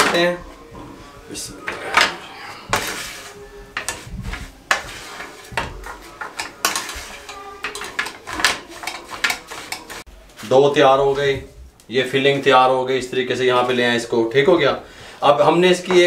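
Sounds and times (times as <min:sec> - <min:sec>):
wooden spatula stirring in pan: 0:00.0 - 0:11.6
spatula knocking and scraping pan: 0:02.7 - 0:10.1.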